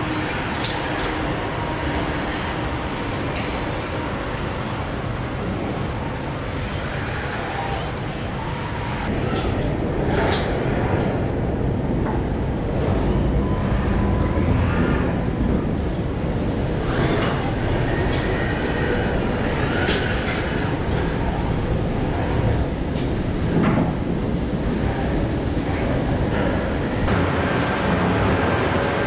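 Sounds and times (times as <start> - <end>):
industrial machinery rumble and hiss: 0.0 - 29.0
faint high whine: 26.8 - 29.0.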